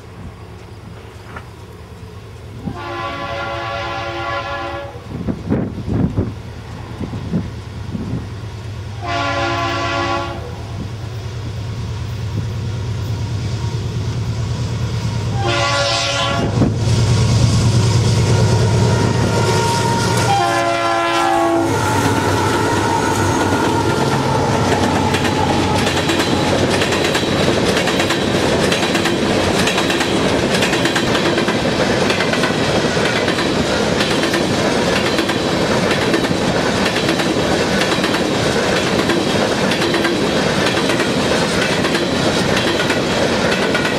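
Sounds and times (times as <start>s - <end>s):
train rumbling past: 0.0s - 43.9s
train air horn: 2.6s - 5.1s, 9.0s - 10.6s, 15.3s - 16.7s, 18.2s - 26.5s
wheels clicking over rail joints: 22.0s - 43.9s.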